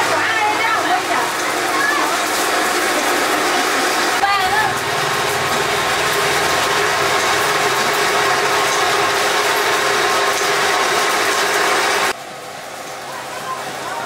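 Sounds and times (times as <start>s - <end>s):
machine clattering: 0.9s - 12.1s.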